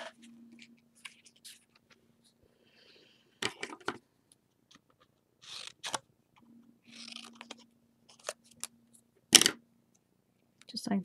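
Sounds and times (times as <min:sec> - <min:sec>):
scissors snipping paper: 0:05.4 - 0:06.0, 0:06.9 - 0:08.6.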